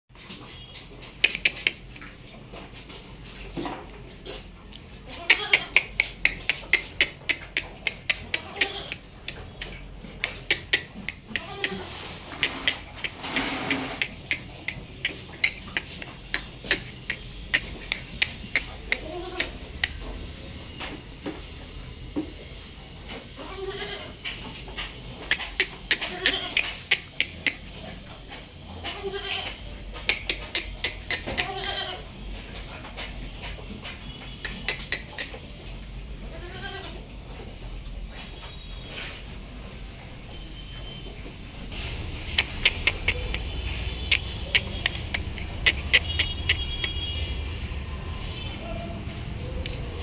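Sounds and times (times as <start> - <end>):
calf feeding from plastic bucket: 0.1 - 47.2
goats bleating: 5.1 - 5.9, 8.2 - 9.1, 11.1 - 12.0, 23.4 - 24.2, 25.5 - 27.0, 28.8 - 29.6, 31.2 - 32.1, 36.3 - 37.0.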